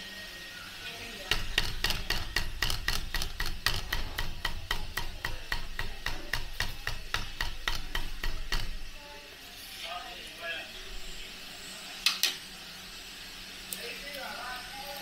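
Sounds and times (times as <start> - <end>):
cleaver chopping on wooden block: 1.3 - 8.8.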